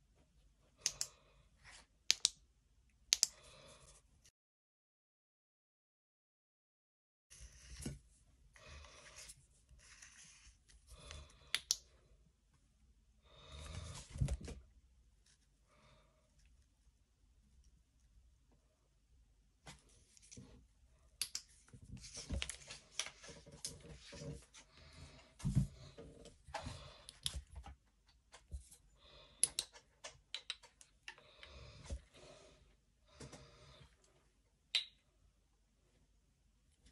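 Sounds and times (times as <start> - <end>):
small sharp clicks: 3.1 - 3.4.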